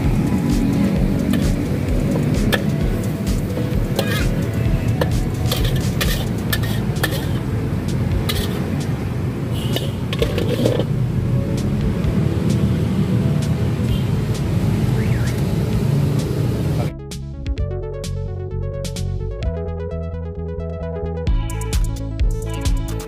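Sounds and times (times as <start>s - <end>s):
street background rumble: 0.0s - 17.2s
utensils and dishes clinking: 5.0s - 7.4s, 8.2s - 8.7s, 9.7s - 11.0s.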